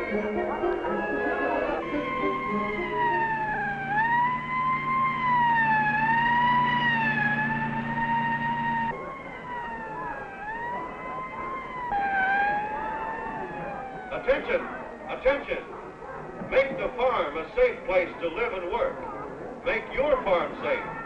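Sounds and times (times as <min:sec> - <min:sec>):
fire truck siren wailing: 0:00.0 - 0:15.7.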